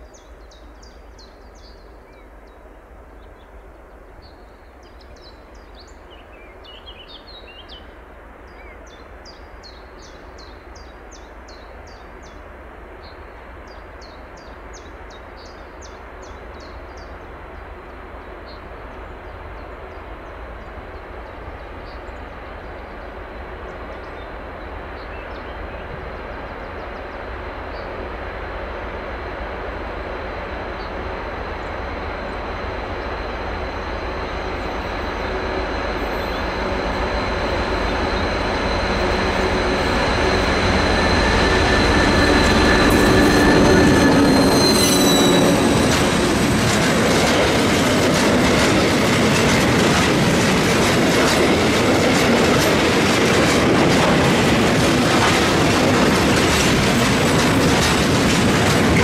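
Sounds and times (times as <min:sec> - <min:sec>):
bird singing: 0:03.2 - 0:07.9, 0:30.7 - 0:46.5
diesel locomotive rumble: 0:25.3 - 0:59.0.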